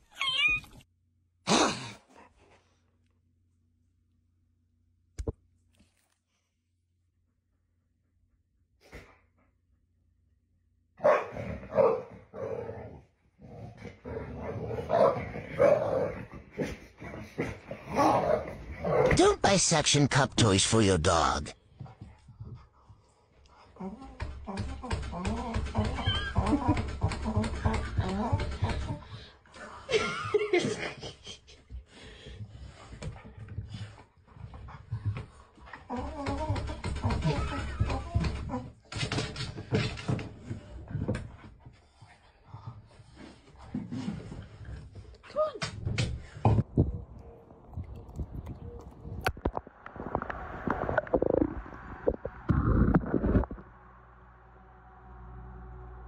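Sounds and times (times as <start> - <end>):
dog barking and growling: 11.0 - 19.2.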